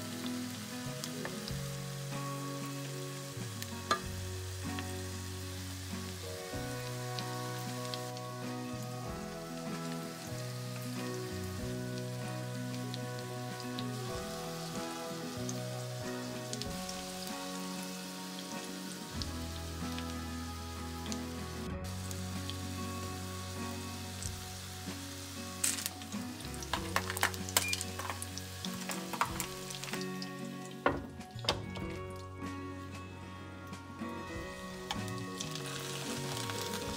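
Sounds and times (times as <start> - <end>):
food sizzling in a frying pan: 0.0 - 32.5, 34.0 - 36.9
background music of held notes: 0.0 - 36.9
oil clicking and popping: 25.6 - 32.2.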